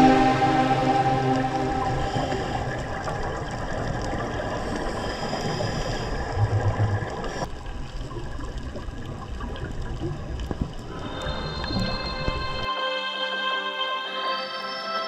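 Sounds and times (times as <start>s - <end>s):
muffled underwater noise: 0.0s - 7.4s.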